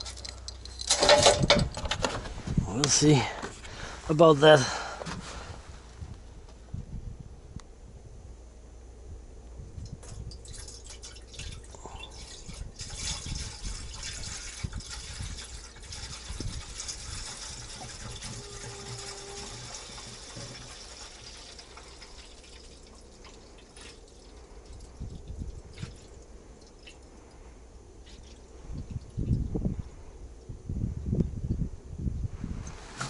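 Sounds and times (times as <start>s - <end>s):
liquid pouring into radiator: 10.2s - 27.3s.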